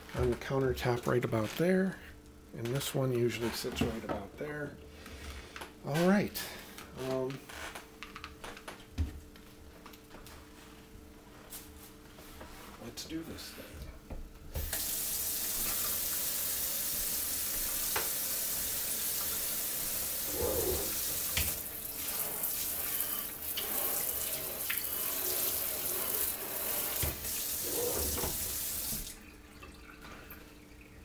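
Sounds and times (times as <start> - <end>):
faucet water running into sink: 14.6 - 31.0.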